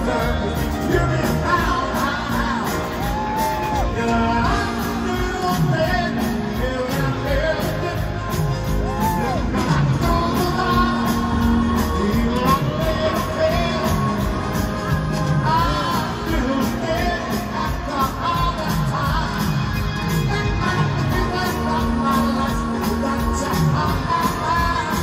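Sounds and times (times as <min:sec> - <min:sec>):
live pop-rock band playing: 0:00.0 - 0:25.0
person singing: 0:00.0 - 0:25.0
crowd shouting and whooping: 0:02.6 - 0:04.8, 0:08.3 - 0:12.8.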